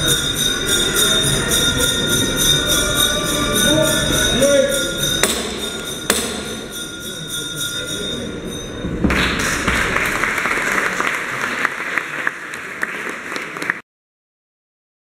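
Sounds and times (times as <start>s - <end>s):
crowd background noise: 0.0s - 13.8s
crowd applause: 9.0s - 13.8s.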